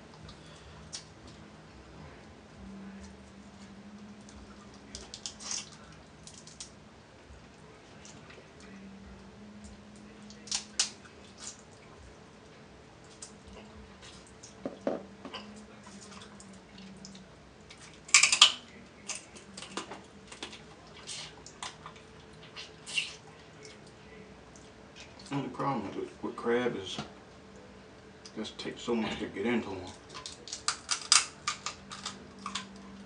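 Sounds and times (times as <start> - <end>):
crab shells cracking: 4.9 - 6.7, 10.4 - 11.6, 18.1 - 20.6, 29.9 - 32.8.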